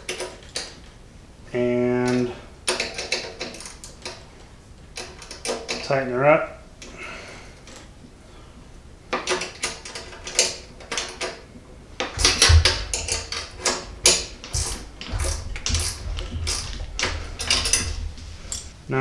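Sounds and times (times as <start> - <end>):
wrench clicking on bolt: 2.1 - 4.2
low knocks: 12.2 - 18.9.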